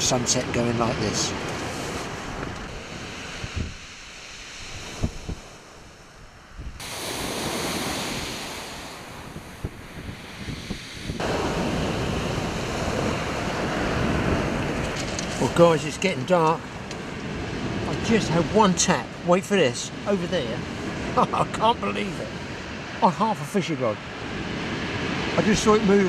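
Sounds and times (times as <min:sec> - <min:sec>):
wind buffeting the microphone: 0:00.0 - 0:18.8
sea waves on the shore: 0:00.0 - 0:26.0.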